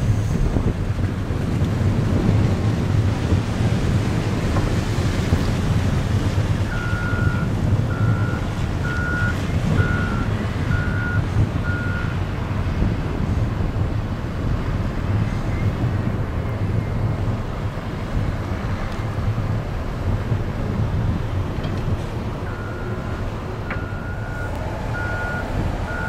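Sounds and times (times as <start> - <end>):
diesel locomotives rumbling: 0.0 - 26.0
backup alarm beeping: 6.7 - 12.1, 22.4 - 26.0.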